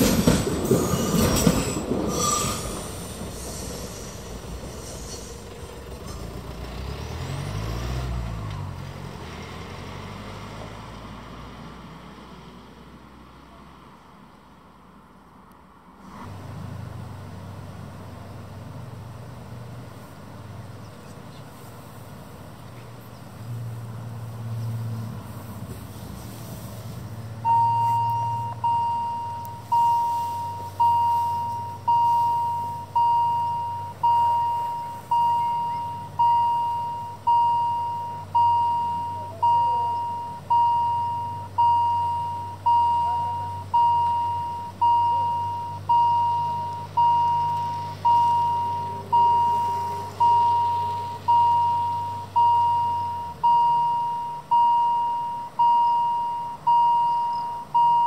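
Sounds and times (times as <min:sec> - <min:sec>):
level-crossing warning bell: 0:27.4 - 0:58.0.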